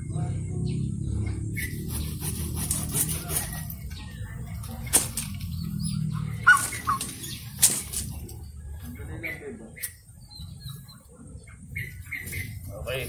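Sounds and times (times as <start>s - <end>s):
branches cracking: 4.6s - 5.5s, 6.4s - 8.5s
leafy branches rustling: 6.3s - 9.0s.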